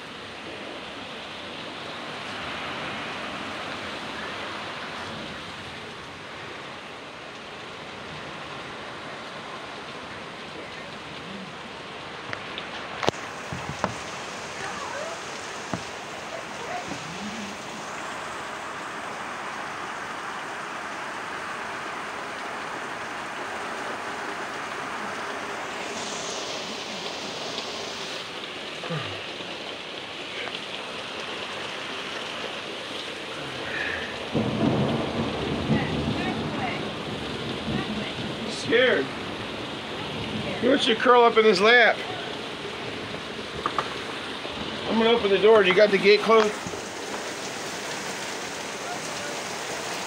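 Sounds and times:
heavy rain pouring: 0.0 - 50.0.

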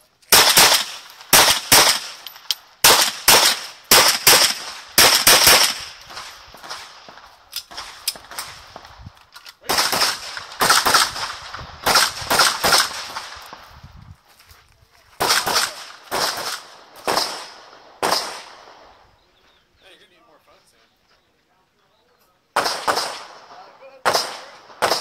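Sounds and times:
pistol shots echoing: 0.3 - 8.5, 9.6 - 13.4, 15.2 - 18.9, 22.6 - 25.0.

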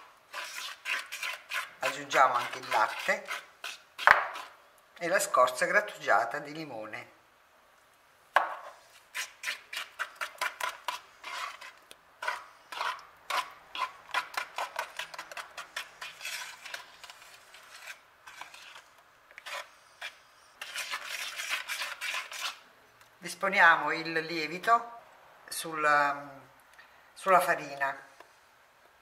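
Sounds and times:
fork beating batter: 0.3 - 4.6, 8.5 - 22.6.

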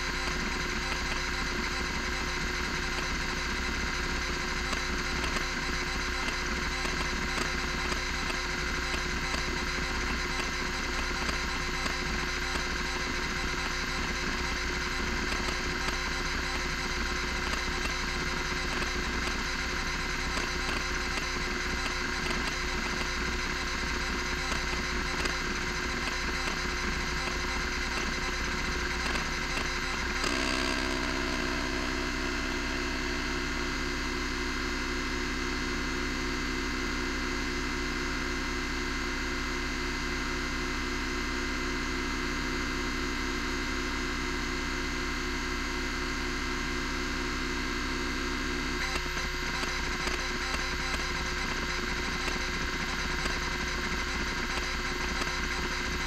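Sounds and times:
hard drive head ticking: 0.0 - 34.2, 48.8 - 56.0
hard drive spindle hum: 0.0 - 56.0
hard drive steady buzz: 0.0 - 56.0.

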